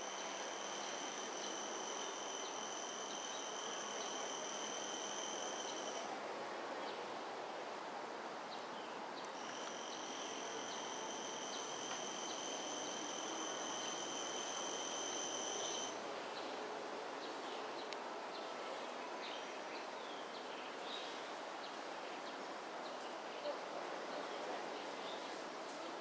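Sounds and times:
faint chirps: 0.0s - 6.1s, 9.4s - 16.0s
high insect whine: 0.0s - 6.1s, 9.4s - 16.0s
outdoor background noise: 0.0s - 26.0s.

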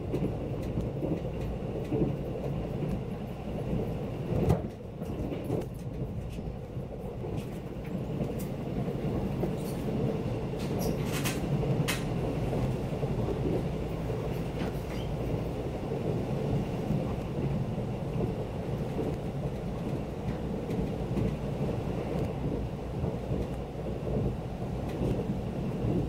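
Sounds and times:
train rumble inside carriage: 0.0s - 26.0s.

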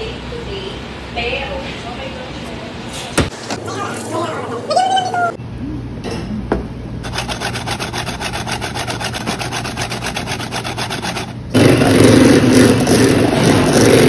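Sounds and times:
whisk scraping metal strainer: 7.0s - 11.4s.

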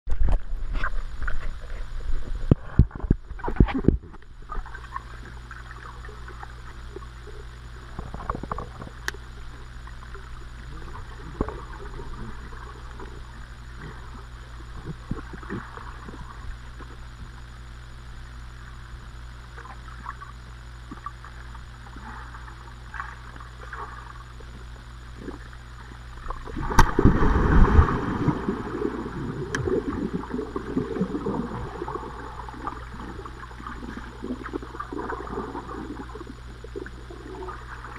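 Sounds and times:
muffled underwater gurgling: 0.1s - 37.9s
small bubbles and clicks: 2.4s - 17.5s, 19.2s - 37.9s
underwater splashing rush: 26.2s - 37.9s.

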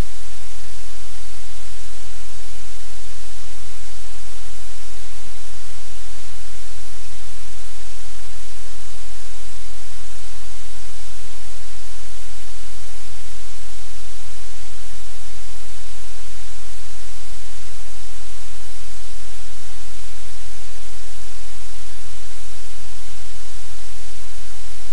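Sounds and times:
low electrical hum: 0.0s - 24.9s
static hiss: 0.0s - 24.9s.

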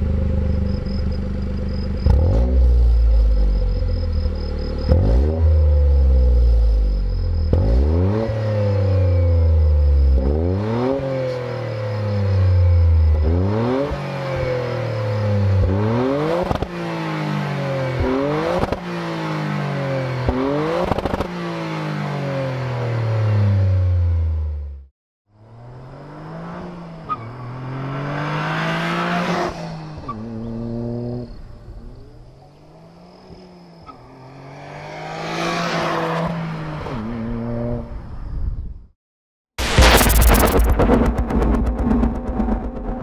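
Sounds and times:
car engine revving: 0.0s - 24.7s, 25.4s - 37.9s
car accelerating past: 25.4s - 31.4s, 32.6s - 38.1s
exhaust cracks: 39.6s - 43.0s.

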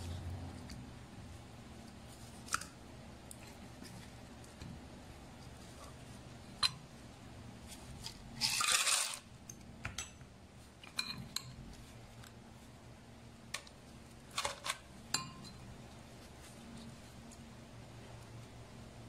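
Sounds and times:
spoon clinking against glass jug: 15.1s - 15.6s.

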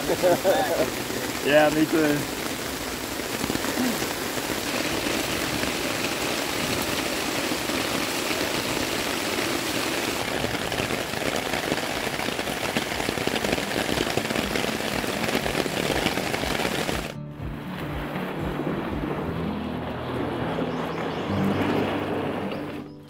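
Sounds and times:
heavy rain splashing on rocks: 0.0s - 17.2s.

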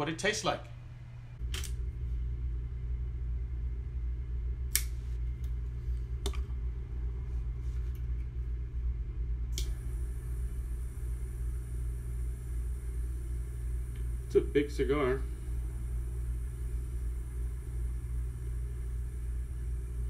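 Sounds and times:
cigar cutter clicks: 4.7s - 5.0s.

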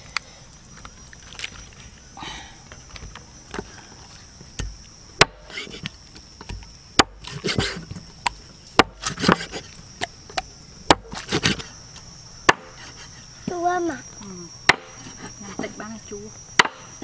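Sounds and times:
blade chopping into wood: 4.6s - 5.8s, 8.8s - 9.7s, 10.9s - 11.6s, 12.5s - 12.9s, 14.7s - 15.2s, 16.6s - 16.9s
light knocks and scraping: 7.2s - 8.1s, 8.9s - 10.5s.

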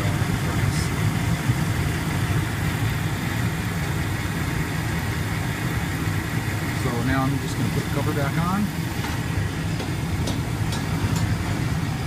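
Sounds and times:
gas furnace rumbling: 0.0s - 12.0s.

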